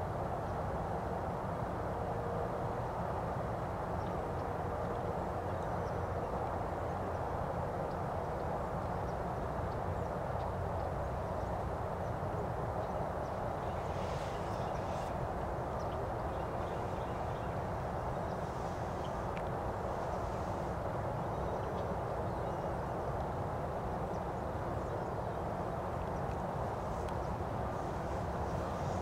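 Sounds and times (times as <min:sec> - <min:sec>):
low background rumble and hiss: 0:00.0 - 0:29.0
faint ticks: 0:18.3 - 0:20.8, 0:26.1 - 0:29.0.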